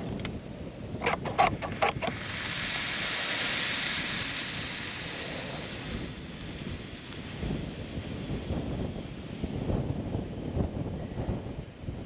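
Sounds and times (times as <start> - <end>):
metal plunger clicks: 1.0 - 2.2
vaporizer hissing: 1.0 - 7.6.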